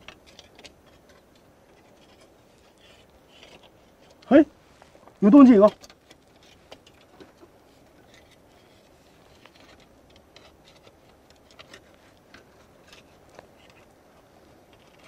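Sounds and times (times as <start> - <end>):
metal rod clicking and scraping rock: 0.0 - 4.3.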